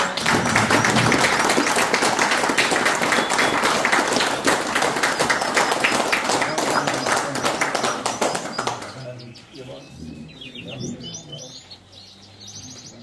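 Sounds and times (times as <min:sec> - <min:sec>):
people clapping: 0:00.0 - 0:09.3.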